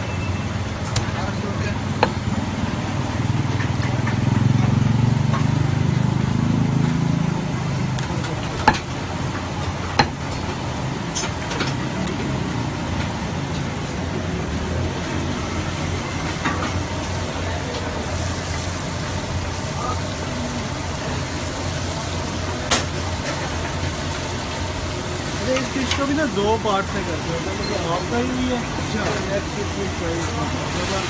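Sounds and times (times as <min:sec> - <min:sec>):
cleaver chopping on wooden block: 0:02.0 - 0:02.4, 0:08.0 - 0:09.0, 0:10.0 - 0:10.3.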